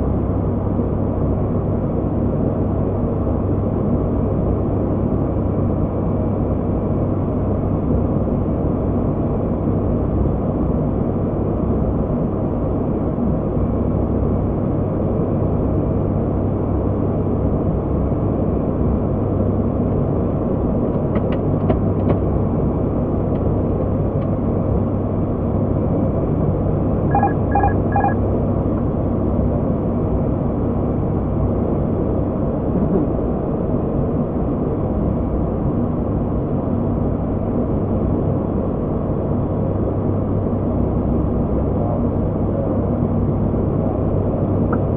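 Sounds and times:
turboprop engines droning: 0:00.0 - 0:44.9
short beeps: 0:27.0 - 0:28.2.

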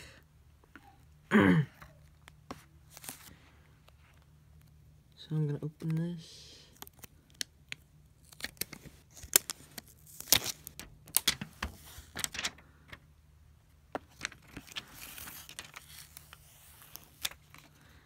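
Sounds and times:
packaging rustling: 0:08.2 - 0:13.0.

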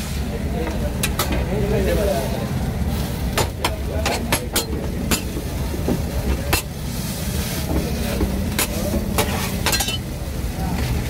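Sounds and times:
metal spatula clacking on griddle: 0:03.3 - 0:05.4.

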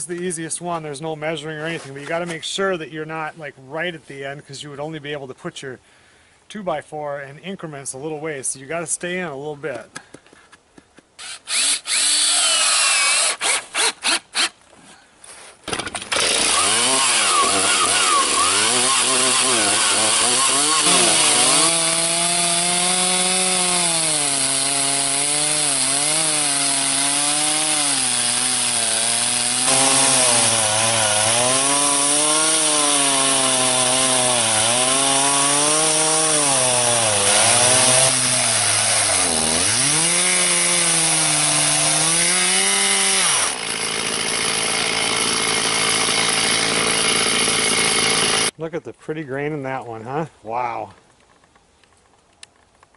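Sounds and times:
chainsaw cutting log: 0:11.1 - 0:14.6, 0:15.6 - 0:48.6.

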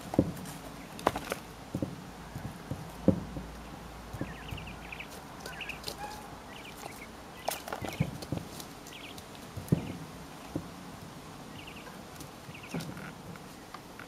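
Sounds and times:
quail pecking knocks: 0:00.0 - 0:10.8
soft bird chirps: 0:03.6 - 0:08.2, 0:08.8 - 0:10.5, 0:11.5 - 0:14.0.

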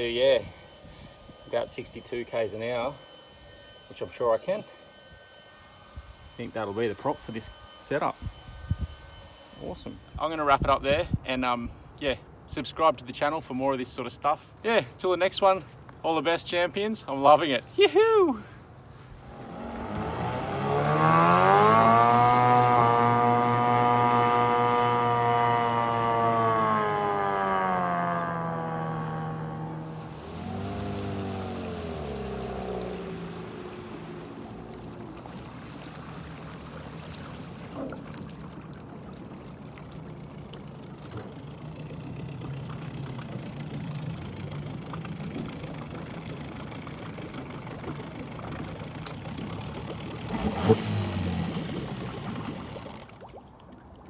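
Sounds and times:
outboard motor revving: 0:19.0 - 0:53.8.

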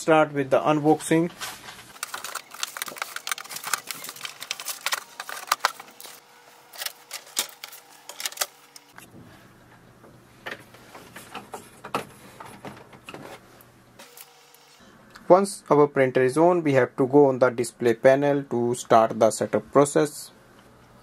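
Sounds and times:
cardboard crackling: 0:01.9 - 0:09.0.

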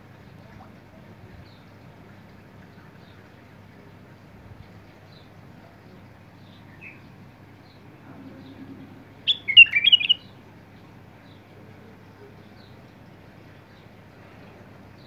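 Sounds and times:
faint bird chirp: 0:04.9 - 0:15.0
bird singing warbled notes: 0:08.0 - 0:10.3.

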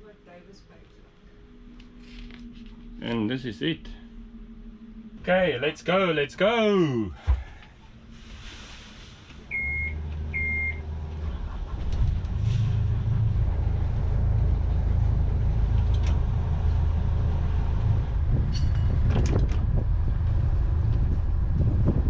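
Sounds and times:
diesel engines rumbling: 0:00.0 - 0:22.0
short electronic beeps: 0:09.5 - 0:10.8.

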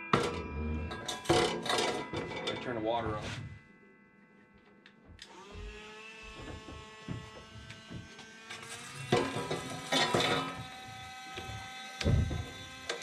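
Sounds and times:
small electric motor whining: 0:05.2 - 0:13.0.

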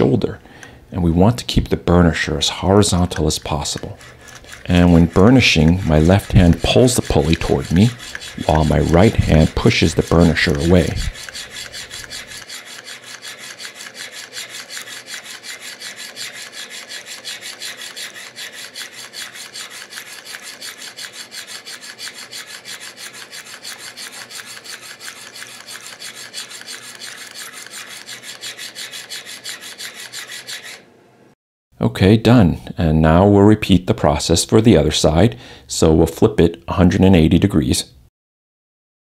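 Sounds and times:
steel burnisher rubbing metal: 0:02.1 - 0:30.9.

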